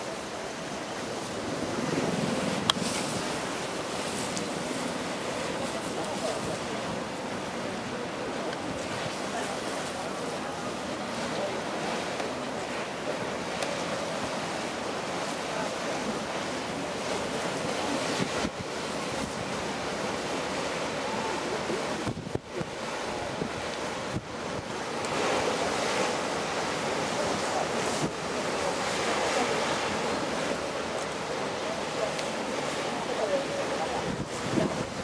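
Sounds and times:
bow wave splashing along hull: 0.0 - 35.0
wind buffeting microphone: 21.8 - 24.9, 33.6 - 35.0.

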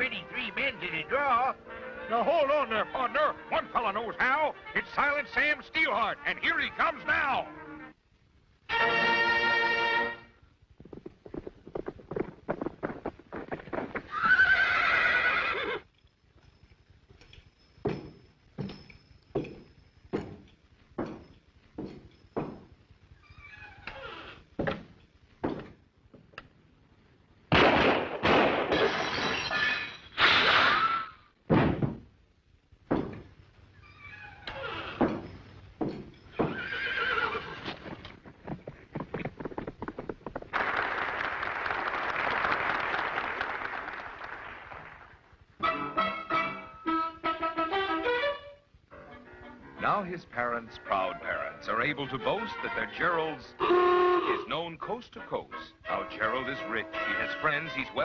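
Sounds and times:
galloping hoofbeats: 10.7 - 22.9, 34.7 - 40.9
clip-clop hoofbeats: 10.8 - 22.9, 34.6 - 40.8
horse whinny: 14.1 - 15.9, 33.9 - 35.2, 36.3 - 38.0.

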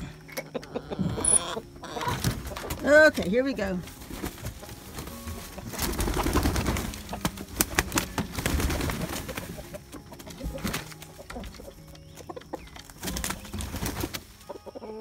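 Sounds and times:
chickens clucking softly: 0.0 - 2.9, 14.4 - 15.0
chickens scuffling: 0.0 - 15.0
sharp clicks of hens hopping: 1.4 - 14.8
wings flapping: 1.9 - 11.8, 12.7 - 14.6.

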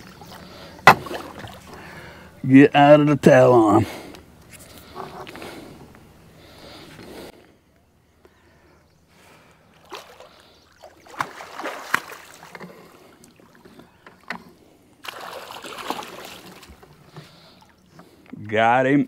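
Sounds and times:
water splashing: 0.0 - 2.1, 9.7 - 13.8, 15.0 - 17.8
knocks against boat: 0.8 - 1.5.

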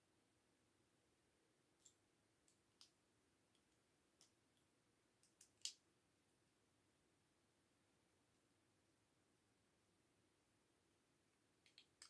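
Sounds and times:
plastic bricks clicking: 11.6 - 12.0.

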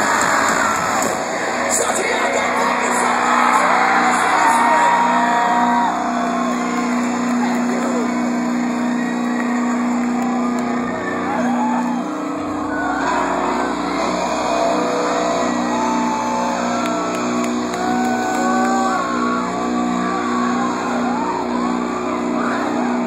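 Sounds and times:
crowd screaming and cheering: 0.0 - 23.0.

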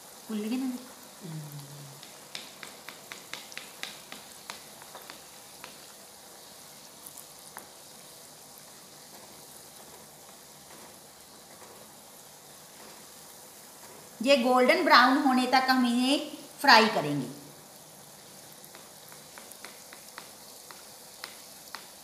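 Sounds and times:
oil sizzling and hissing: 0.0 - 22.0
sharp crackling ticks: 1.9 - 6.0, 18.6 - 22.0.

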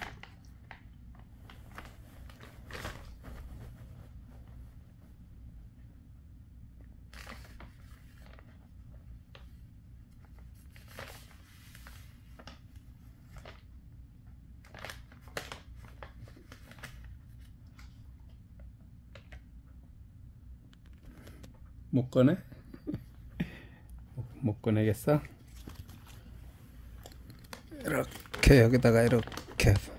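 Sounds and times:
plastic pouch crinkling: 25.4 - 29.9.

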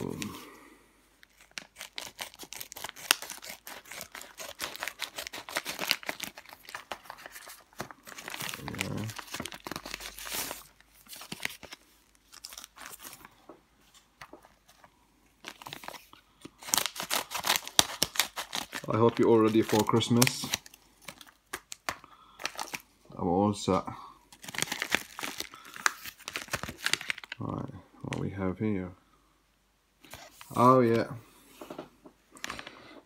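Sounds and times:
packaging crinkling and rustling: 1.2 - 22.9, 24.3 - 28.2.

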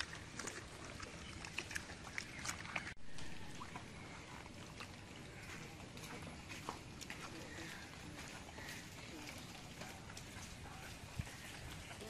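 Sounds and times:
water splashing in a bucket: 0.0 - 5.9
faint outdoor background: 0.0 - 12.0.

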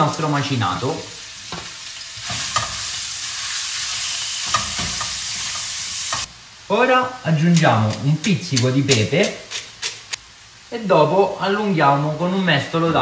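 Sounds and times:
meat sizzling in a frying pan: 0.0 - 6.7
spatula clicking against pan: 7.6 - 10.0.

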